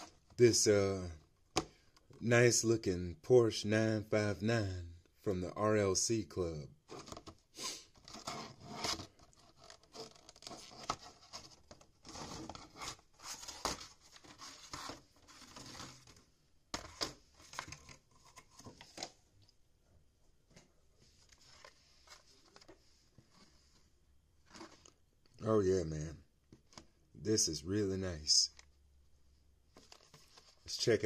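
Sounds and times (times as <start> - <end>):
plastic case scraping and crinkling: 8.0 - 16.2.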